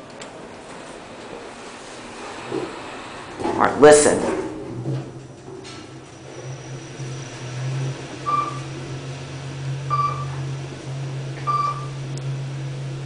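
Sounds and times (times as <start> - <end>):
elevator motor humming: 0.0 - 13.0
single-tone elevator chime: 9.9 - 10.5.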